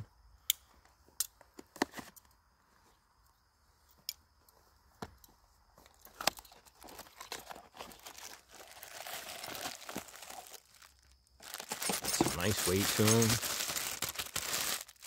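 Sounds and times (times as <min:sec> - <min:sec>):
cardboard box being opened: 0:06.7 - 0:10.8, 0:11.4 - 0:14.0
plastic bag crinkling: 0:06.8 - 0:15.0.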